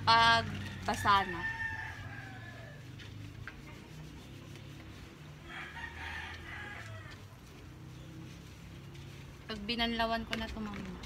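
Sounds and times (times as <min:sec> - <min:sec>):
hands rubbing soap into dog fur: 0:00.4 - 0:11.0
rooster crowing: 0:00.6 - 0:02.9, 0:05.4 - 0:07.2.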